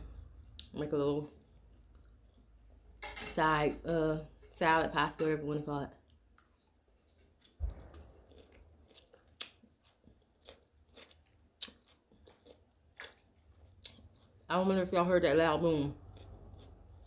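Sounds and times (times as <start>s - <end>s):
crunchy salad chewing: 6.0s - 14.5s, 16.0s - 17.0s
distant low boom: 7.6s - 8.6s.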